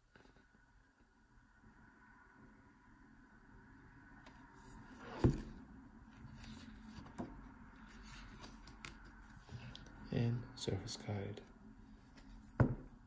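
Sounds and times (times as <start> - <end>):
booklet pages turning: 6.2 - 10.0.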